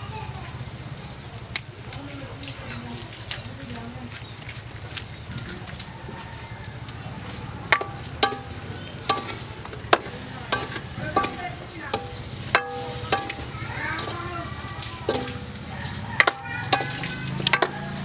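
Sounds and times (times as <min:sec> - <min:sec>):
frying sizzle: 0:06.2 - 0:18.0
spatula knocking against wok: 0:07.7 - 0:18.0.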